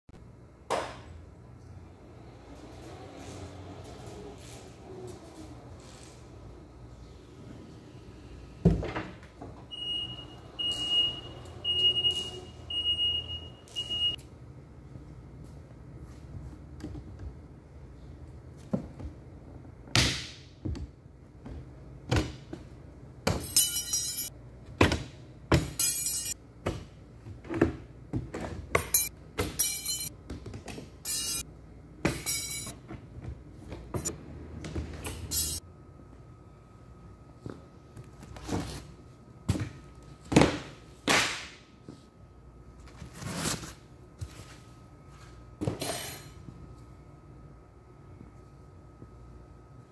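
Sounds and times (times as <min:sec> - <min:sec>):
forklift warning beeper: 0:09.7 - 0:14.2.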